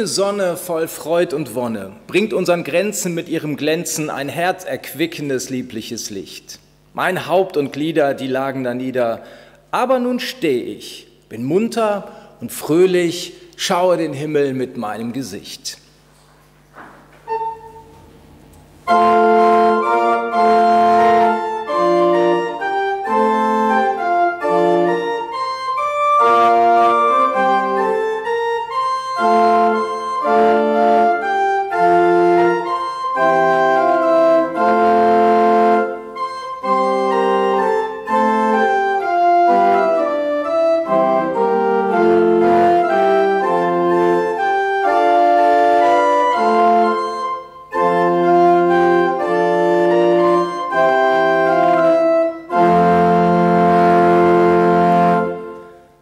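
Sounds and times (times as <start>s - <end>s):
pipe organ playing a hymn: 17.2s - 18.1s, 18.8s - 56.0s.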